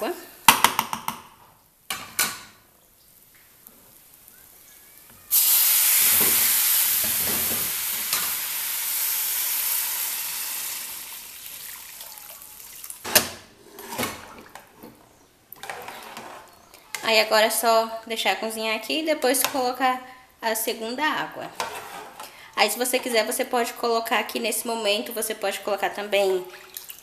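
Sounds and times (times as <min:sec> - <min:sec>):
water sizzling in hot oil: 0:03.1 - 0:13.1.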